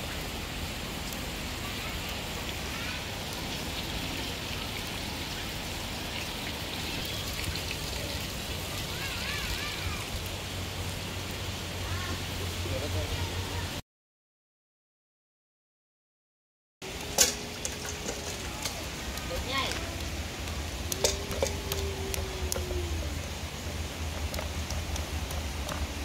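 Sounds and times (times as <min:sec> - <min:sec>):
rushing water: 0:00.0 - 0:13.8, 0:16.8 - 0:26.0.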